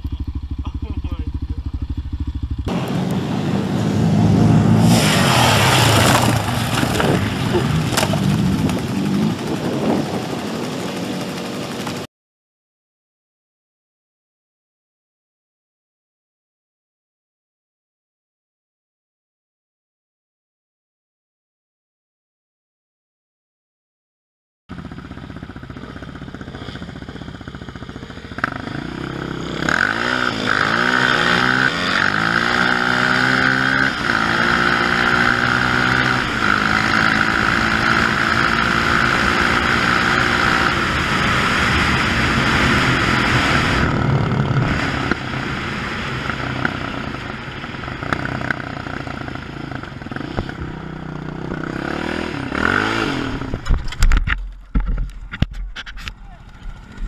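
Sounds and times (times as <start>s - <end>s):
quad engine accelerating: 0.0s - 12.1s, 24.7s - 57.0s
rushing wind noise: 2.6s - 11.8s, 29.6s - 50.8s.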